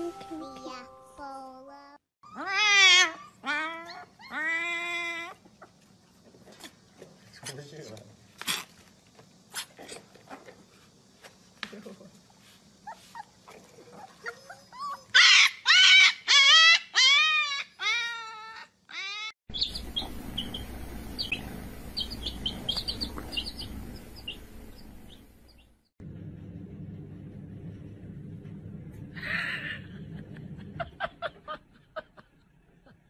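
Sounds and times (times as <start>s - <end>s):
puppies howling: 2.2s - 5.4s, 13.8s - 24.5s
baby chicks peeping: 19.5s - 25.7s
low steady hum: 19.5s - 31.9s.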